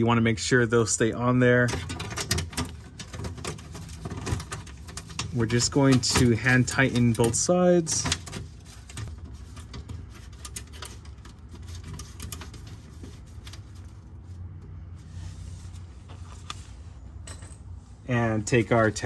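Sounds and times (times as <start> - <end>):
bolts clicking and scraping: 1.4 - 14.8.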